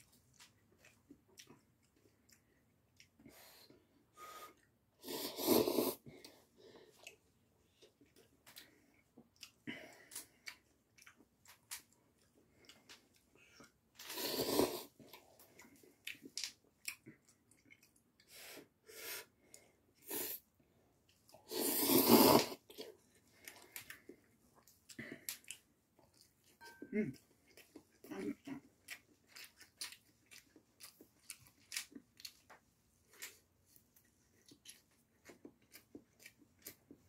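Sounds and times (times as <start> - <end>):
wet chewing: 0.1 - 3.8, 6.2 - 14.2, 15.0 - 18.3, 22.6 - 37.0
person slurping noodles: 5.0 - 6.0, 14.0 - 15.0, 20.0 - 20.4, 21.4 - 22.9.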